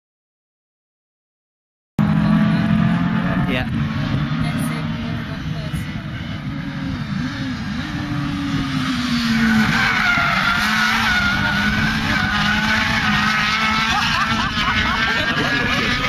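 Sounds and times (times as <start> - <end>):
buggy engine revving: 2.0 - 16.0
tyres squealing: 9.4 - 15.5.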